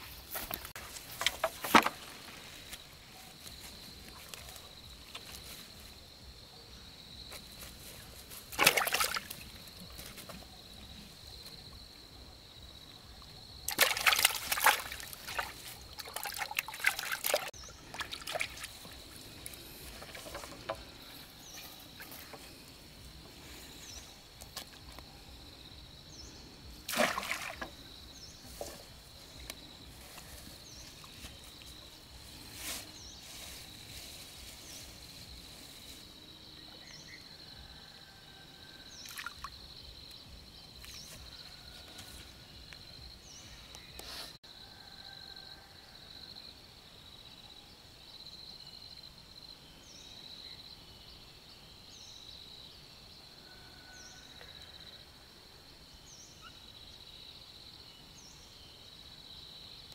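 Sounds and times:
water sloshing and splashing: 8.5s - 10.3s, 13.7s - 20.8s, 26.9s - 27.9s.

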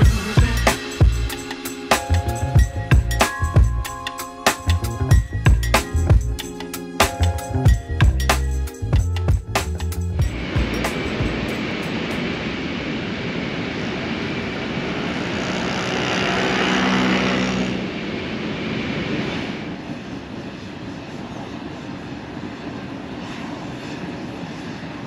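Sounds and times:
wind noise: 7.0s - 25.0s
scooter engine: 15.2s - 17.9s.

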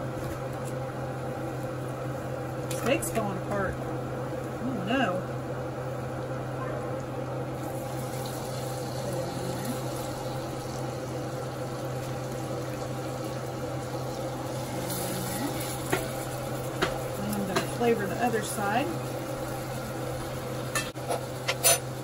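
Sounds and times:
steady low hum: 0.0s - 22.0s
steaks sizzling in a skillet: 7.6s - 22.0s.

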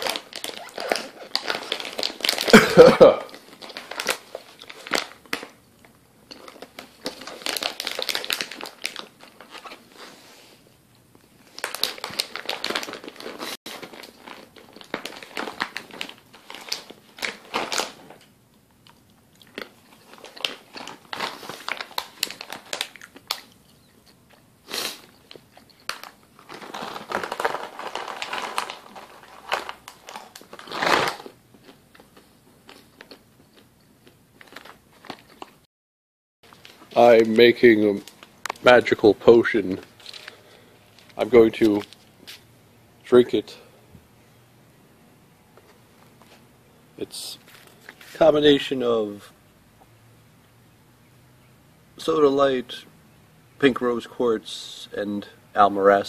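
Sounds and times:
dog crunching a treat: 0.0s - 10.0s, 11.5s - 35.6s.

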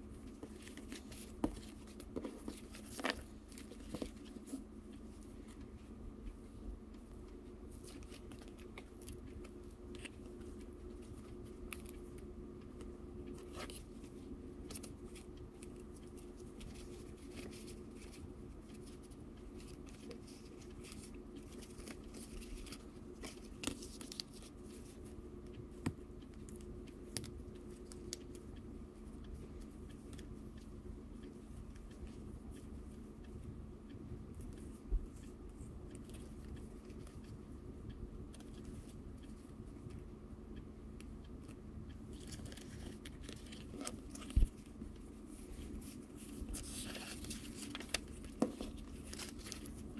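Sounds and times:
faint steady hum: 0.0s - 49.9s
paper rustling and crinkling: 0.2s - 4.6s, 13.3s - 25.0s, 42.2s - 44.6s, 45.3s - 49.9s
small ticks and taps: 25.4s - 28.6s.

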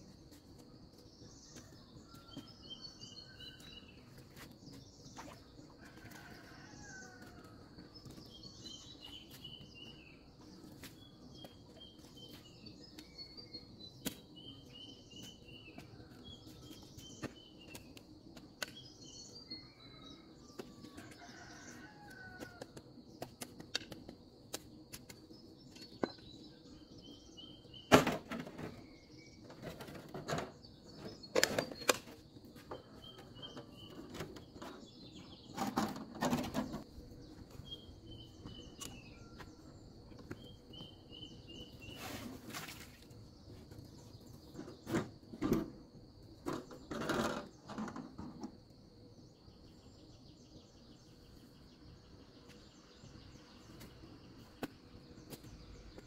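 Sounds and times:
birds chirping: 28.6s - 45.0s.

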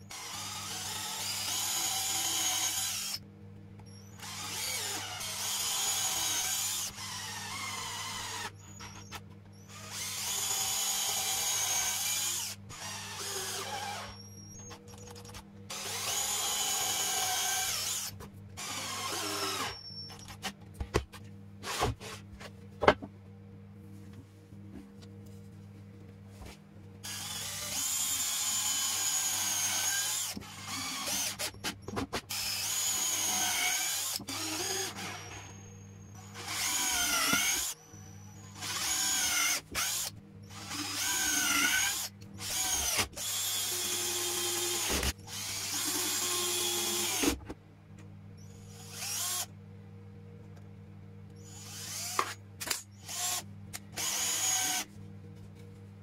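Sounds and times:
cordless drill drilling into wood: 0.1s - 3.2s, 9.7s - 14.2s, 15.7s - 19.8s, 27.1s - 31.5s, 32.3s - 35.5s, 36.3s - 37.8s, 38.5s - 47.4s, 48.8s - 49.5s, 51.5s - 52.3s, 53.1s - 53.4s, 54.0s - 54.8s.

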